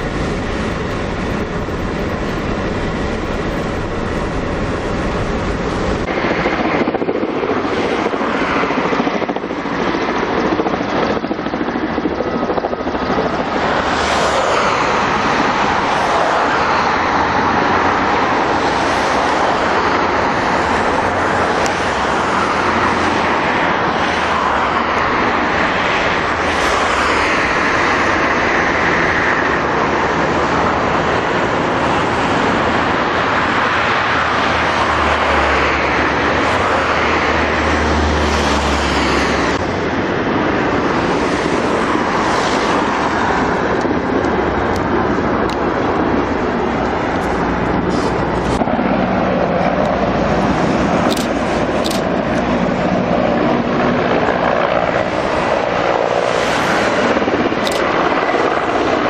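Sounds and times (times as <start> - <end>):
heavy low rumble: 0.0 - 7.3
cars and vans passing: 0.0 - 11.9, 12.6 - 59.0
steady road noise: 0.0 - 59.0.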